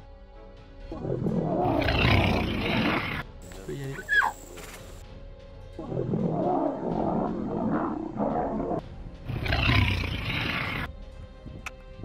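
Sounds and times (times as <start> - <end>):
background music: 0.0 - 12.0
lion growling and roaring: 0.9 - 3.2, 5.8 - 10.9.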